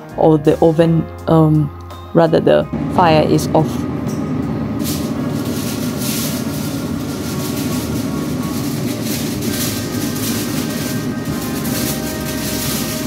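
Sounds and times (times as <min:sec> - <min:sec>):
steady low drone: 0:02.4 - 0:13.0
aluminium foil rustling: 0:02.8 - 0:13.0.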